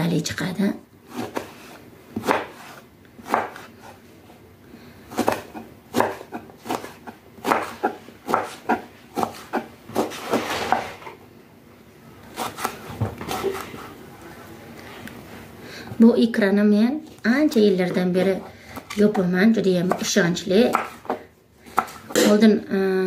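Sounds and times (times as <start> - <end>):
knife dicing on wooden board: 1.1 - 3.7, 5.1 - 10.8, 19.8 - 22.4.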